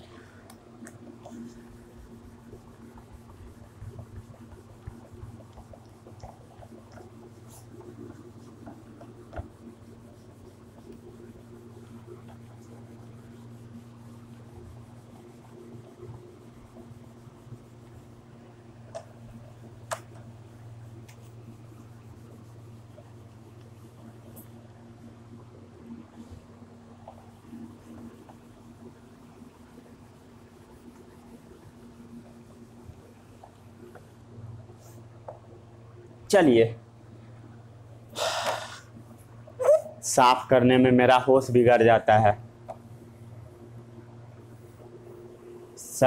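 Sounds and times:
duster rubbing whiteboard: 0:01.2 - 0:18.2.

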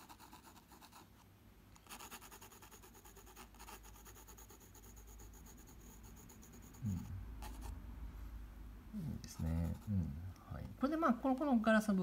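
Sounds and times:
pencil hatching on paper: 0:01.8 - 0:07.7.

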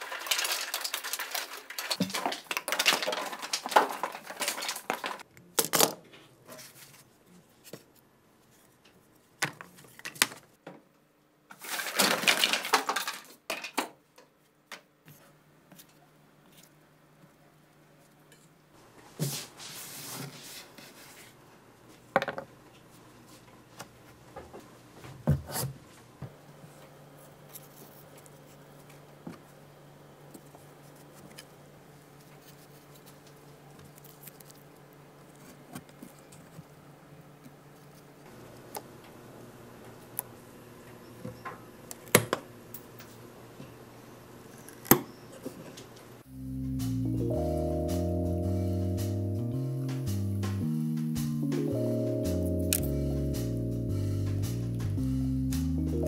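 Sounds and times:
clattering rustling handling noise: 0:00.0 - 0:07.9, 0:11.5 - 0:13.8.

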